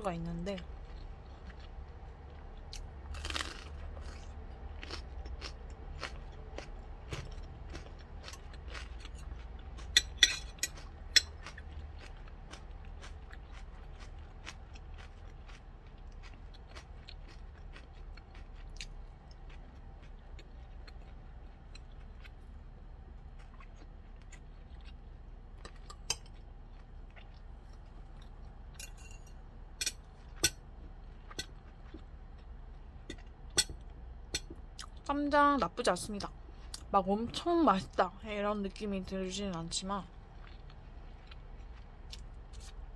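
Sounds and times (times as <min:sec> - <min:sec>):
soft chewing: 0:00.1 - 0:35.1, 0:36.0 - 0:37.6, 0:39.5 - 0:42.9
utensils clinking on ceramic bowl: 0:28.8 - 0:30.0.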